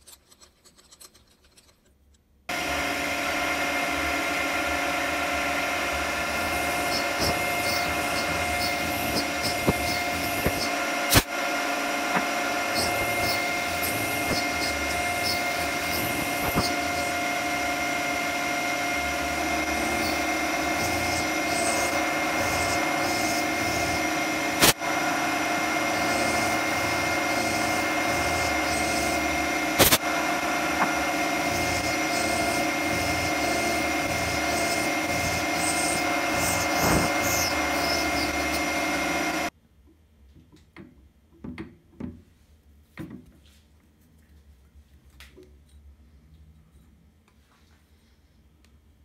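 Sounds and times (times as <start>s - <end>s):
milling machine cutting steel: 2.5s - 39.5s.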